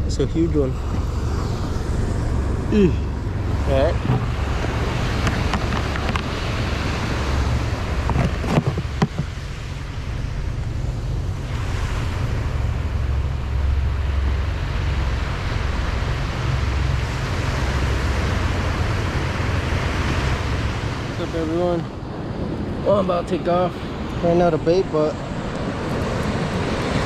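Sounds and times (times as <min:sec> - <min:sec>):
wind buffeting microphone: 0:00.0 - 0:27.0
ocean surf breaking on beach: 0:00.1 - 0:27.0
short knocks: 0:08.0 - 0:09.3.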